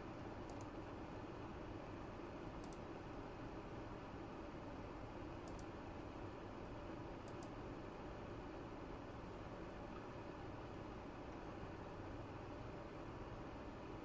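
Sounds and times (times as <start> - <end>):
low room hum: 0.0 - 14.0
keyboard clicks: 0.4 - 0.8, 2.6 - 2.8, 5.4 - 5.7, 7.2 - 7.6.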